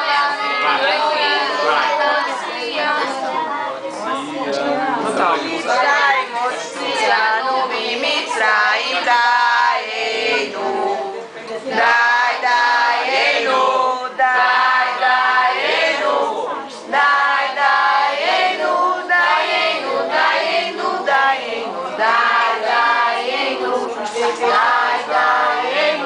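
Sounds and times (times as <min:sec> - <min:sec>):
family group singing: 0:00.0 - 0:26.0.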